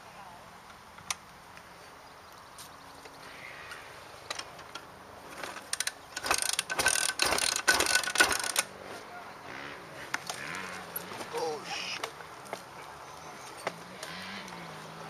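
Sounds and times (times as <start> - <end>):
rapid mechanical clicking and rattling: 5.4 - 8.7.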